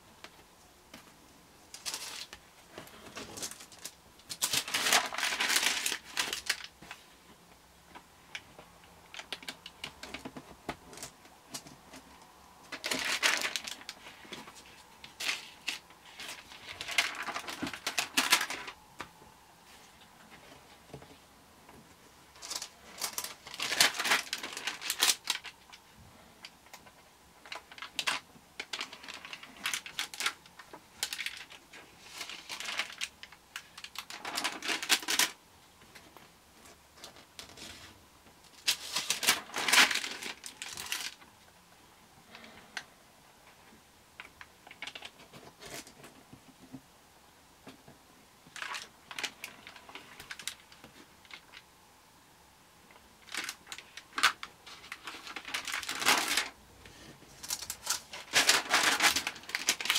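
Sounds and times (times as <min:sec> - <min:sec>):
album pages rustling and clicking: 0:00.2 - 0:07.2, 0:07.9 - 0:19.2, 0:19.8 - 0:41.3, 0:44.2 - 0:46.8, 0:48.5 - 0:51.7, 0:52.9 - 0:59.9.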